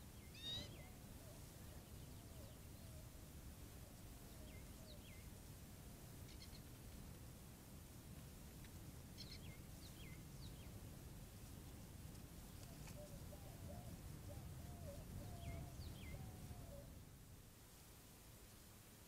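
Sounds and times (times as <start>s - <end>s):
faint bird calls: 0.1s - 3.2s, 6.2s - 6.7s, 12.5s - 17.0s
faint low wavering call: 0.4s - 3.1s.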